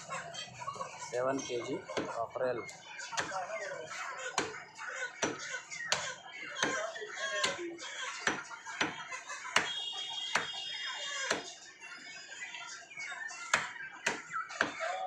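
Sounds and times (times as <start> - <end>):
voices talking: 0.0 - 15.0
cleaver chopping on wooden block: 2.0 - 2.2, 3.2 - 3.4, 4.4 - 4.6, 5.2 - 7.6, 8.2 - 9.0, 9.6 - 10.6, 11.3 - 11.5, 13.5 - 14.9.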